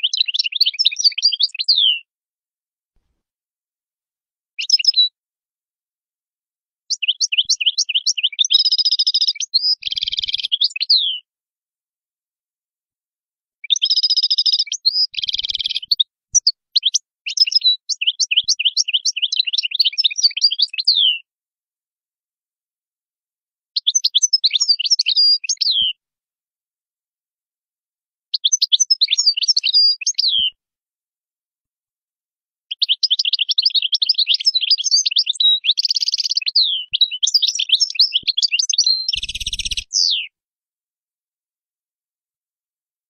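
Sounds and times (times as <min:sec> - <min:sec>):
goldfinch twittering song: 0:00.0 - 0:02.0, 0:04.6 - 0:05.1, 0:06.9 - 0:11.2, 0:13.6 - 0:21.2, 0:23.8 - 0:26.0, 0:28.4 - 0:30.5, 0:32.7 - 0:40.3.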